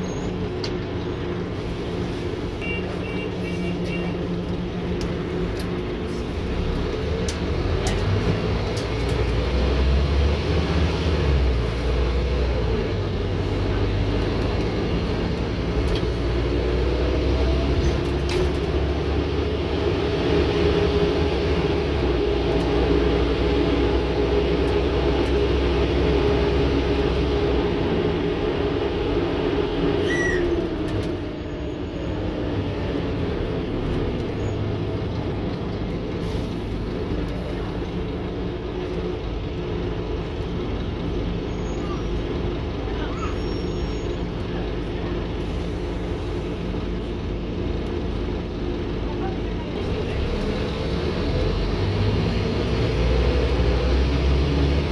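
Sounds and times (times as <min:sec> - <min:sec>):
bus diesel engine under load: 0:00.0 - 0:54.9.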